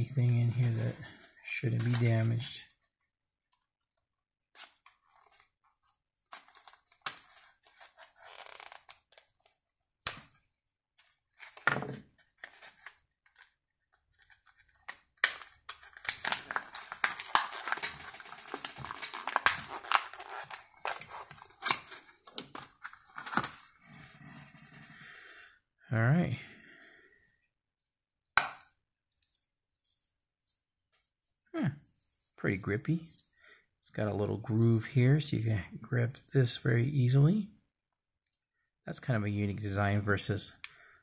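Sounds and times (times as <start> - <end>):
plastic packaging crackling: 14.8 - 23.7.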